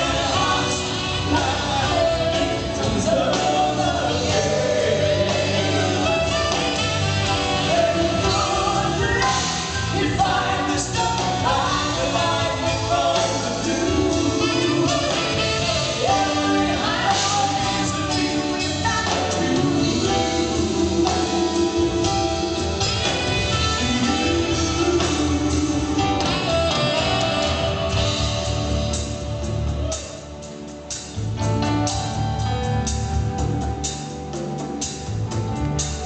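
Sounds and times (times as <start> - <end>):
man and woman singing: 0.0 - 6.6, 7.4 - 27.4
live rock band playing: 0.0 - 36.0.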